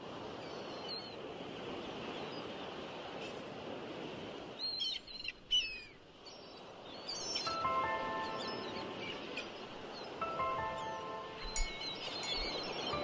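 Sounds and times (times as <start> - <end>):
steady outdoor hiss: 1.2 - 13.0
small birds chirping: 4.6 - 13.0.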